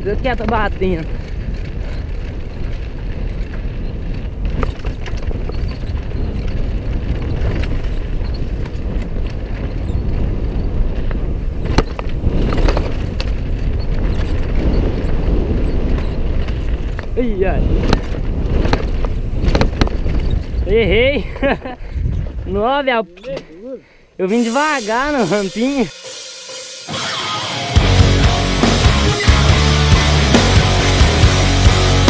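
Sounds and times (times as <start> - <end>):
wind rushing: 0.0 - 22.9
bike tyre noise on dirt: 0.0 - 25.9
bike clattering and knocking: 11.1 - 21.6
person speaking: 22.4 - 25.9.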